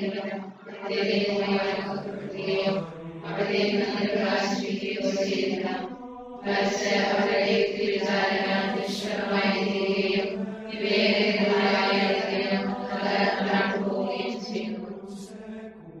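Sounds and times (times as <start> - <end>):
vocal chanting: 0.0 - 16.0.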